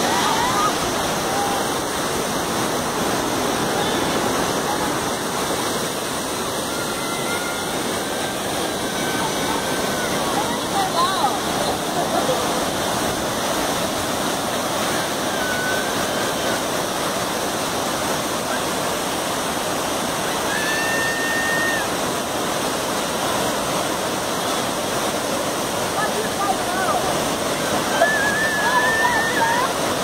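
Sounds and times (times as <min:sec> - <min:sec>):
waterfall rushing: 0:00.0 - 0:30.0.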